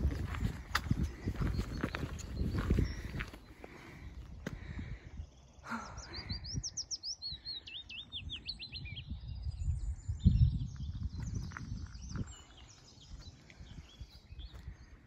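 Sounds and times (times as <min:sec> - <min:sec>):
footsteps on gravel: 0:00.0 - 0:04.7, 0:11.2 - 0:13.6
songbird singing: 0:00.0 - 0:15.0.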